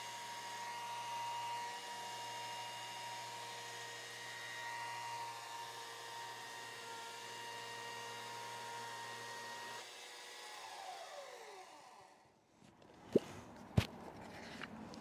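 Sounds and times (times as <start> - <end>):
chainsaw running and winding down: 6.2 - 12.3.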